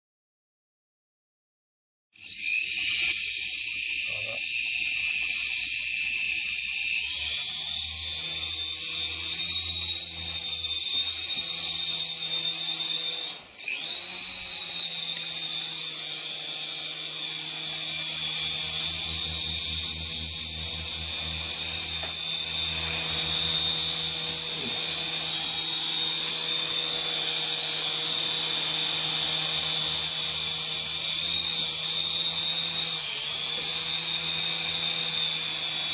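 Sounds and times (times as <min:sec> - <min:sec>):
small electric motors whining: 0:02.2 - 0:35.9
rotor hum: 0:17.9 - 0:27.9.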